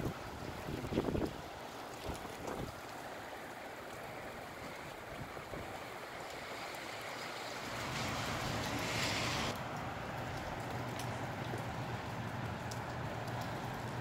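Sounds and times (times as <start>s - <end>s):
strong gusty wind with rain: 0.0s - 14.0s.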